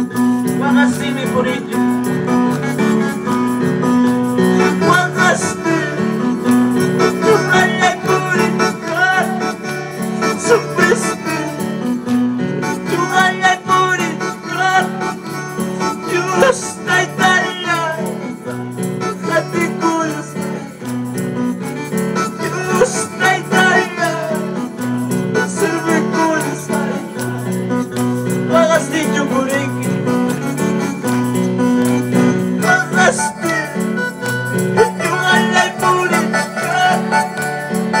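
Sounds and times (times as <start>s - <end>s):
electronic keyboard with bass line: 0.0s - 38.0s
voices singing: 4.4s - 11.7s, 16.0s - 18.4s, 22.4s - 27.5s, 32.5s - 34.0s, 34.8s - 38.0s.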